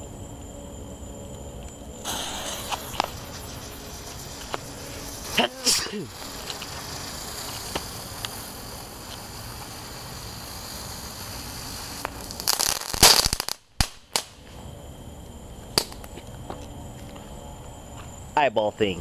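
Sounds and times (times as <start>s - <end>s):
faint crackles: 1.7s - 13.6s
firework hissing sparks: 2.0s - 14.5s
firework pops and bangs: 2.0s - 14.5s, 15.7s - 16.2s.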